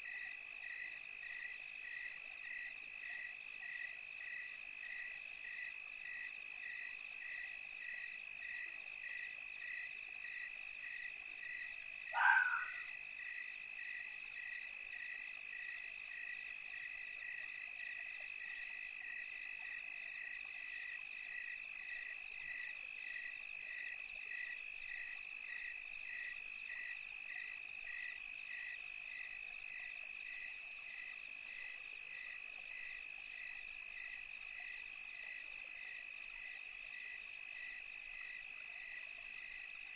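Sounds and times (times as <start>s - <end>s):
short loud animal call: 12.2s - 12.8s.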